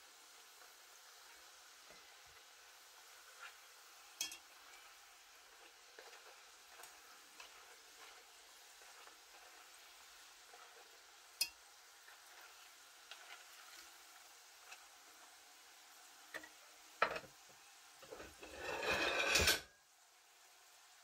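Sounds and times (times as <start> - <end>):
oil sizzling and crackling: 0.0 - 21.0
metal fork knocking on pot: 4.2 - 4.4.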